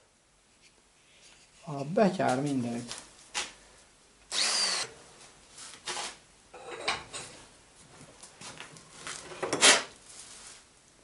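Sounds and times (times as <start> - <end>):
die grinder whine: 4.3 - 5.0.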